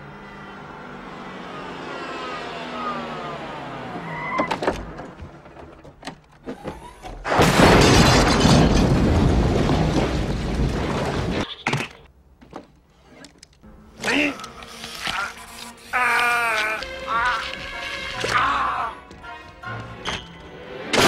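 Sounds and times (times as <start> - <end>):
loud crash with shattering: 7.2 - 11.4.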